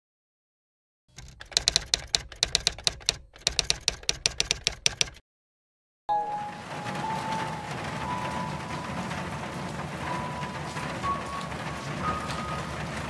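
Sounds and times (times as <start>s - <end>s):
typewriter keys striking: 1.1s - 5.2s.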